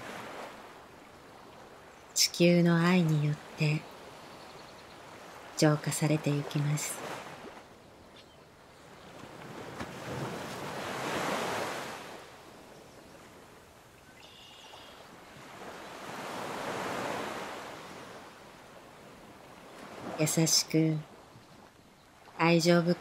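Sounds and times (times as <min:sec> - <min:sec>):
sea waves washing in: 0:00.0 - 0:04.3, 0:05.0 - 0:07.8, 0:08.6 - 0:21.3
faint high chirp: 0:14.0 - 0:15.0.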